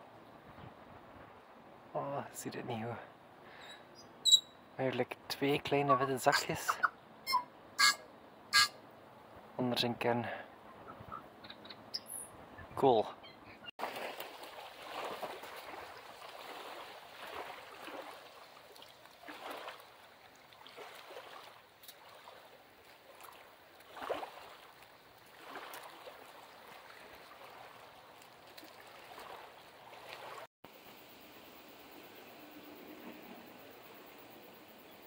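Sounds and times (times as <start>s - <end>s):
water trickling with gurgles: 13.8s - 30.5s.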